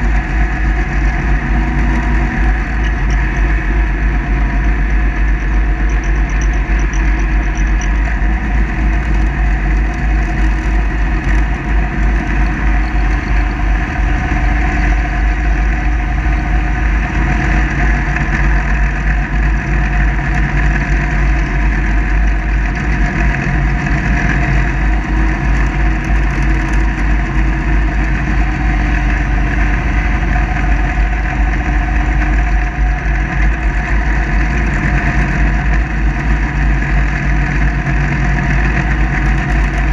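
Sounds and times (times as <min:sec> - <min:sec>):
mower engine running: 0:00.0 - 0:39.9.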